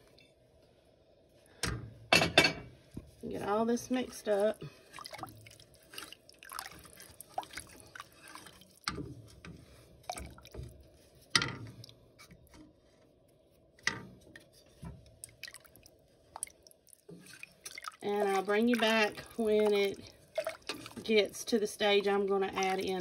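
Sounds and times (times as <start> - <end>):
liquid sloshing and dripping: 2.9 - 23.0.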